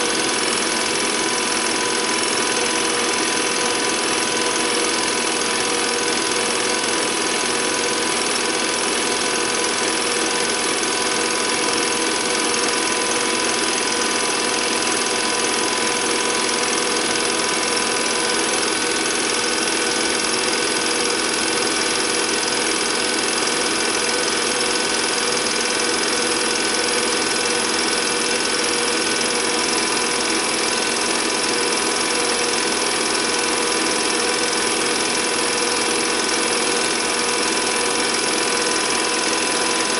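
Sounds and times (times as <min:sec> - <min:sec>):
film projector humming: 0:00.0 - 0:39.9.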